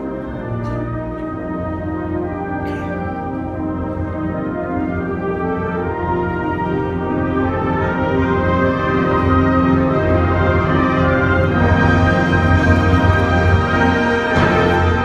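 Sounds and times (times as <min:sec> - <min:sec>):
concert band playing held chords: 0:08.0 - 0:15.0.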